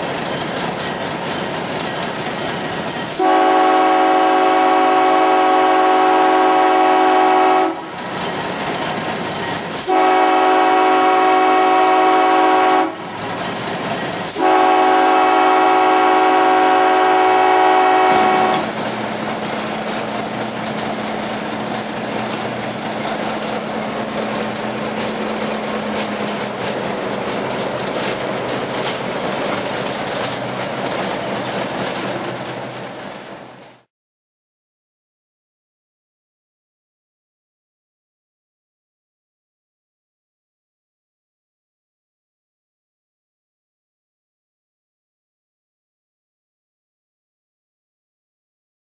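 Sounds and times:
locomotive engine hum: 0:00.0 - 0:33.8
rail noise: 0:00.0 - 0:33.9
locomotive air horn blasts: 0:03.0 - 0:08.1, 0:09.7 - 0:13.1, 0:14.2 - 0:18.8.

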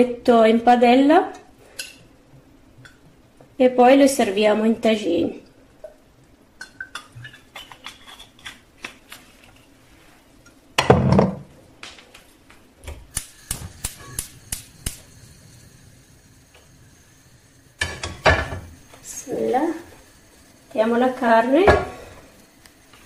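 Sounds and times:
burner igniter clicking: 0:13.0 - 0:15.6
frying pan clattering on metal grate: 0:17.8 - 0:18.7.

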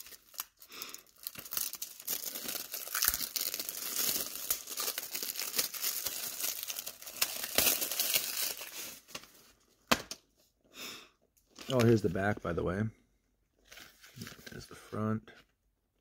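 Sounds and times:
plastic shrink-wrap crinkling and tearing: 0:00.0 - 0:09.4.

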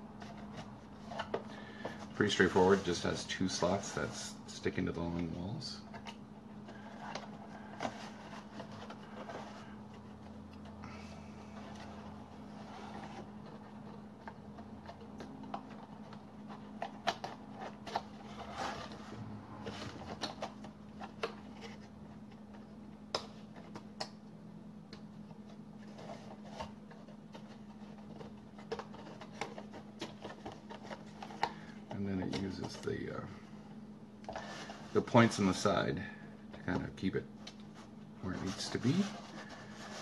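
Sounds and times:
paper rustling: 0:00.2 - 0:05.0, 0:25.3 - 0:33.0, 0:37.6 - 0:40.0.

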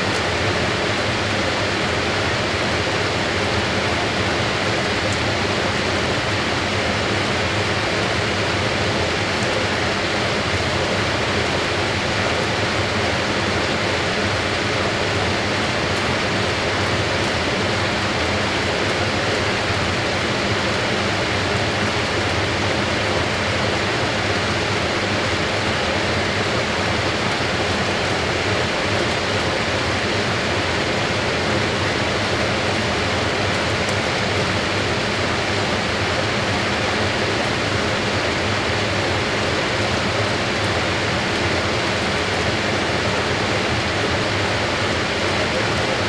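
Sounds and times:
washing machine spin rushing: 0:00.0 - 0:46.0.

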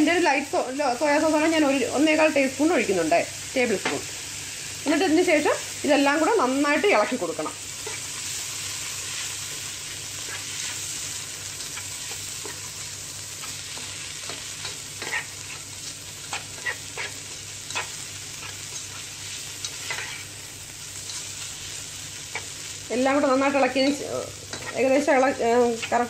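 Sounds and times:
food sizzling in a frying pan: 0:00.0 - 0:26.0
spatula scraping a pan: 0:08.9 - 0:20.3, 0:23.8 - 0:25.0.

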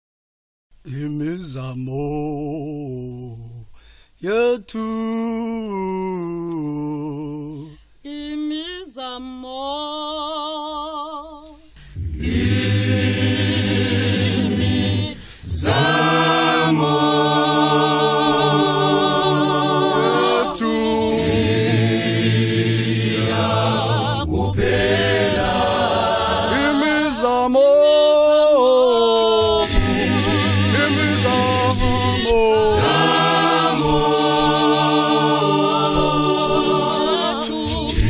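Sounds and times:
choir singing a hymn: 0:12.0 - 0:38.0.

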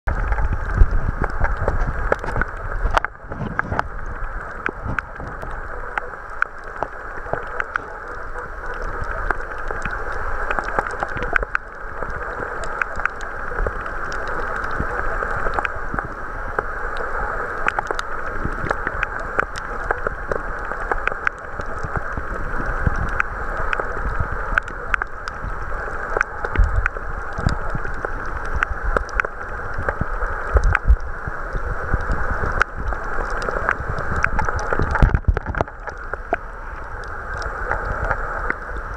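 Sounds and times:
sharp underwater clicks: 0:17.6 - 0:31.1, 0:31.8 - 0:38.9.

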